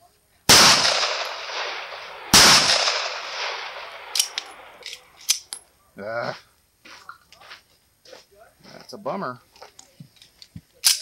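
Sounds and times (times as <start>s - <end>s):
pistol shot: 0.5s - 4.8s.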